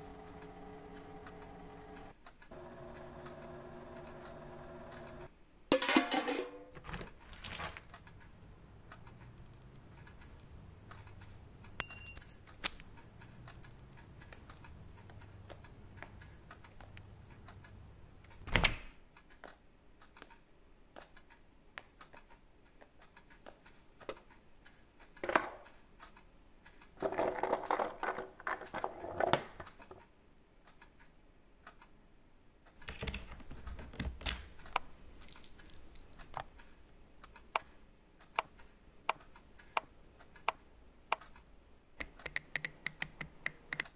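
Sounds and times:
thin high whine: 0.0 - 5.3.

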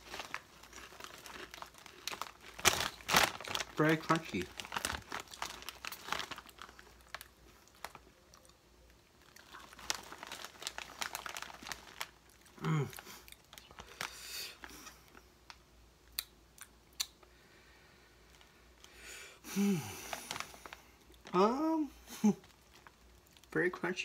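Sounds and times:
foil chip bag crinkling: 0.0 - 8.5, 9.1 - 15.3, 20.0 - 24.0
chewing crunchy potato chips: 0.0 - 15.1.

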